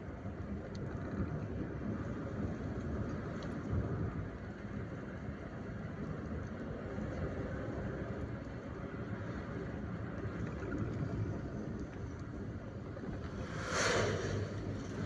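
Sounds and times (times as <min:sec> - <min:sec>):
car engine and tyre noise: 0:00.0 - 0:15.0
truck passing whoosh: 0:13.0 - 0:15.0.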